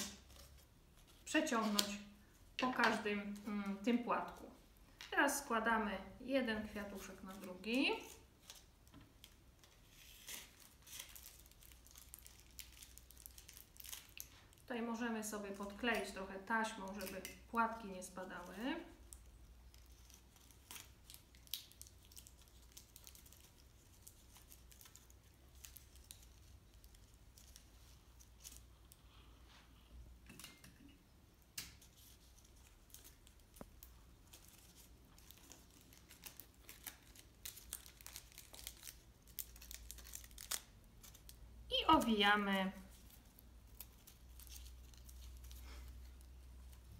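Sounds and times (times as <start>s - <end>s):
paper crinkling and rustling: 6.8s - 14.7s, 18.4s - 28.9s, 31.7s - 42.2s, 42.8s - 46.9s.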